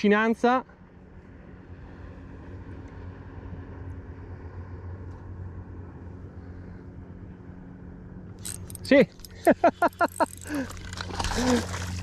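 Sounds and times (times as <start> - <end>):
distant engine humming: 0.7 - 12.0.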